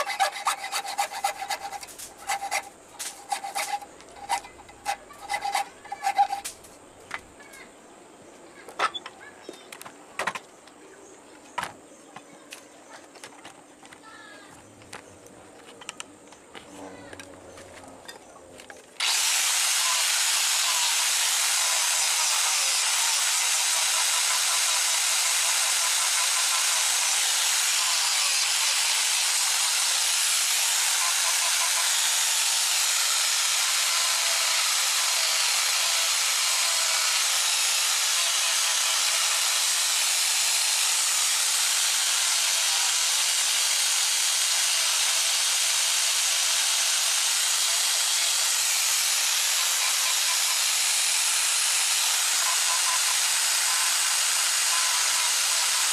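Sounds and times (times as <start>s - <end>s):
angle grinder sanding wood: 0.0s - 6.7s, 19.0s - 55.9s.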